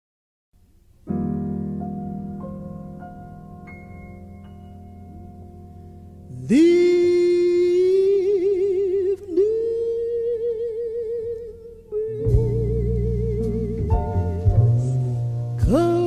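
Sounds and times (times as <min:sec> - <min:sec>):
heavy low accompaniment: 0:01.1 - 0:16.0
person singing with vibrato: 0:06.3 - 0:16.0.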